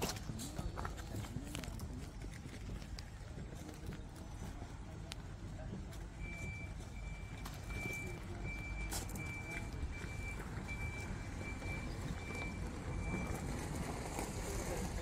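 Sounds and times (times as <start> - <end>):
electronic warning beeps: 6.1 - 13.7.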